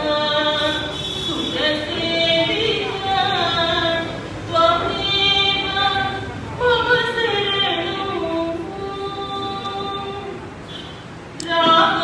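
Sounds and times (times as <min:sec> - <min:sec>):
woman singing: 0:00.0 - 0:10.4, 0:11.4 - 0:12.0.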